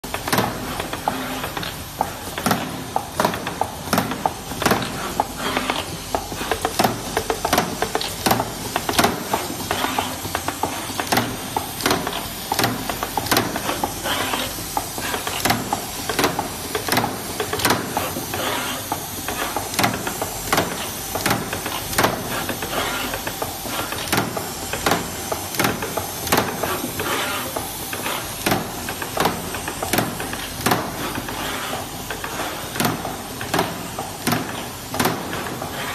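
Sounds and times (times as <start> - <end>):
machine hissing: 0.5 - 35.9.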